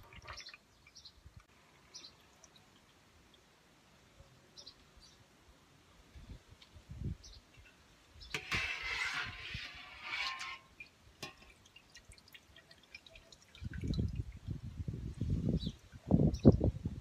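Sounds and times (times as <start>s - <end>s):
whey dripping and trickling: 0.0s - 3.6s, 9.4s - 16.1s.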